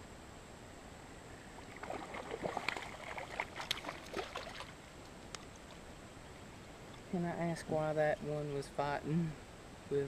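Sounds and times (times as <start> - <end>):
fish splashing in water: 1.7 - 4.8.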